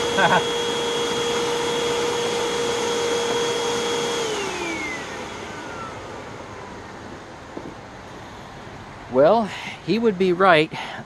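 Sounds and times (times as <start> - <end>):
motor winding down: 0.0 - 7.0
vacuum cleaner whine: 0.0 - 7.8.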